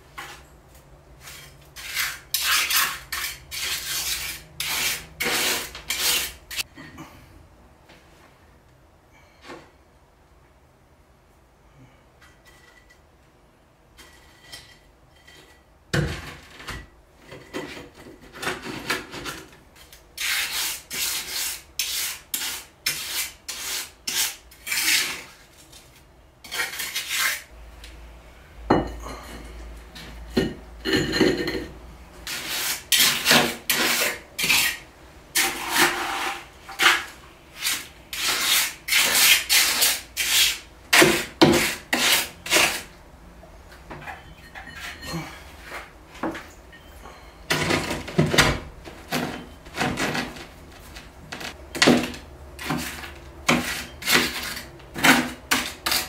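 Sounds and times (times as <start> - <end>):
scraping in wet concrete: 1.2 - 6.7, 14.0 - 27.5, 32.2 - 34.8, 35.4 - 42.9, 47.5 - 56.0.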